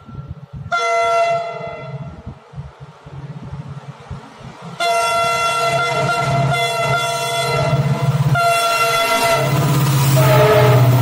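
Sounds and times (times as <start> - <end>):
locomotive multi-tone horn: 0.7 - 2.1, 4.8 - 11.0
locomotive engine throbbing: 3.4 - 11.0.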